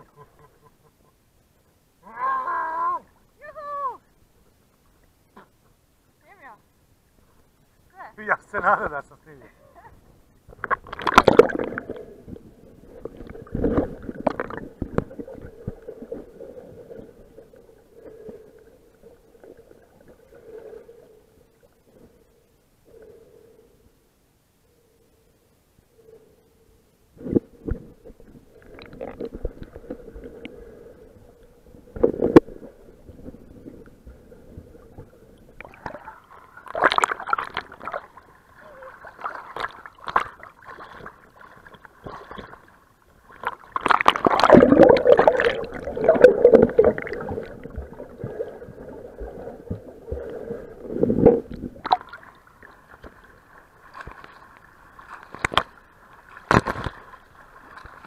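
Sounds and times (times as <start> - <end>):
faint steady hum: 0.0 - 58.0
water sloshing and splashing: 10.5 - 21.1, 31.7 - 58.0.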